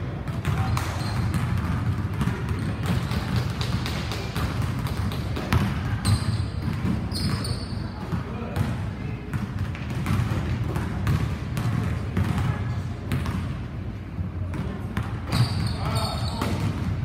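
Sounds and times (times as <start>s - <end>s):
basketball bouncing on hardwood floor: 0.3s - 7.5s, 9.3s - 12.5s, 13.1s - 13.5s.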